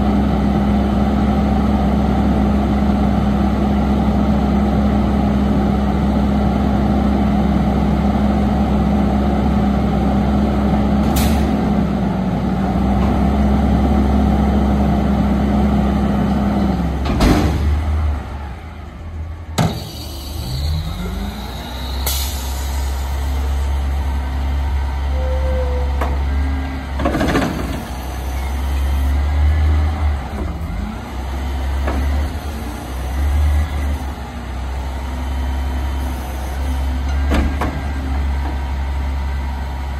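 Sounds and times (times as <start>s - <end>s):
air brake hiss: 22.0s - 23.2s.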